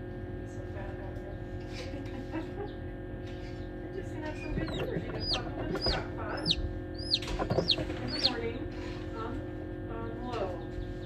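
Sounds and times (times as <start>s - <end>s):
steady hum: 0.0s - 11.0s
chick peeping: 4.4s - 8.5s.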